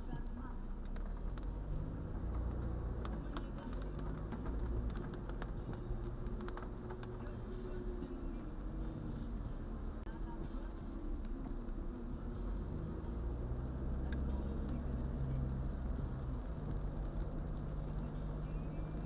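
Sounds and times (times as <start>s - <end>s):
car engine and tyres on wet road: 0.0s - 19.0s
rain ticking on windshield: 0.4s - 8.3s.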